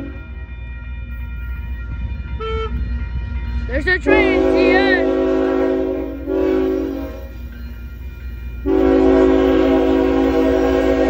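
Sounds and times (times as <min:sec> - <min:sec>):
locomotive air horn blasts: 0:04.1 - 0:07.4, 0:08.6 - 0:11.0.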